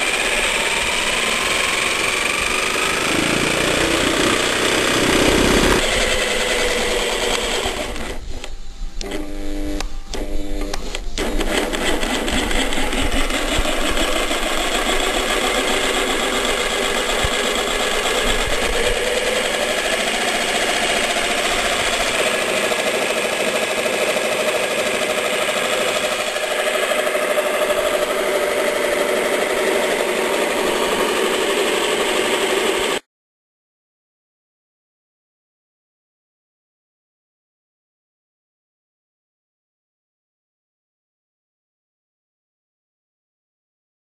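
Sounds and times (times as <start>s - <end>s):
jigsaw running: 0.0s - 9.4s, 11.2s - 33.1s.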